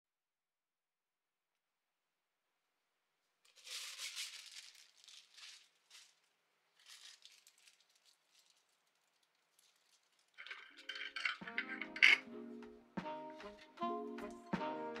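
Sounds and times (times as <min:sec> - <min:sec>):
soft rustling and crinkling: 0:03.4 - 0:12.2.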